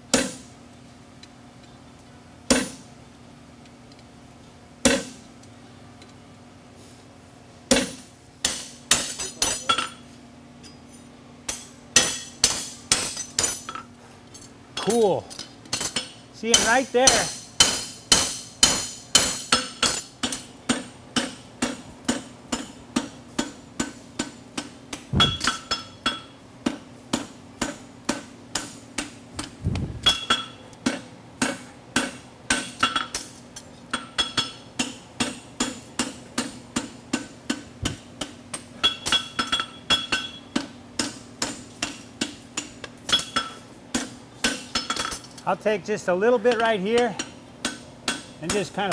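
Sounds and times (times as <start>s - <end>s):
hammer striking horseshoe on anvil: 0.1s - 0.4s, 2.5s - 2.8s, 4.8s - 5.2s, 7.7s - 10.0s, 11.5s - 13.9s, 14.8s - 45.4s, 46.5s - 48.9s.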